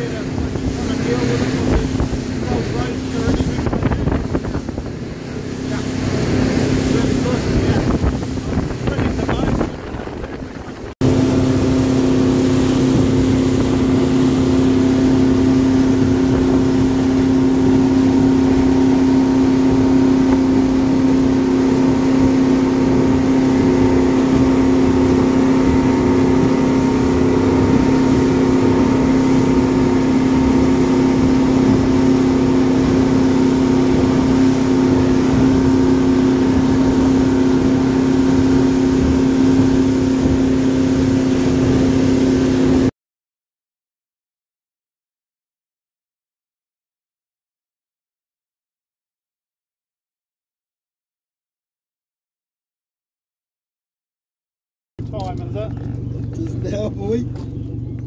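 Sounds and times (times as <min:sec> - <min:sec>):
boat wake rushing: 0:00.0 - 0:42.9, 0:55.0 - 0:58.0
motorboat engine drone: 0:00.0 - 0:42.9, 0:55.0 - 0:58.0.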